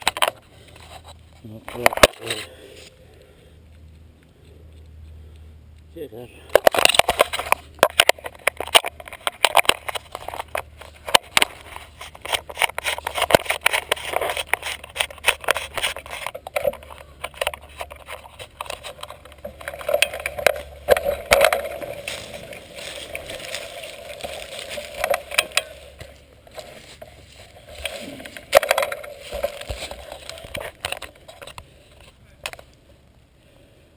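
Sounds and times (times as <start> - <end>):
steady hum: 0.0 - 33.9
bike rattling over dirt trail: 6.6 - 32.6.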